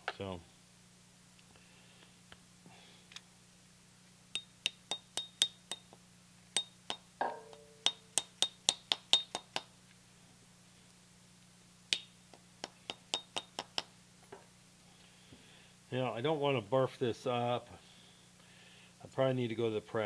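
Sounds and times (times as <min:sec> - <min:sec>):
ringing metal clang: 0:06.9 - 0:08.6.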